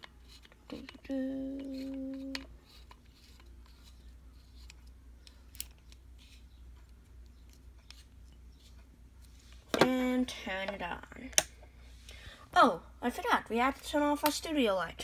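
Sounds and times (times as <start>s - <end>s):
person humming: 0.8s - 2.5s.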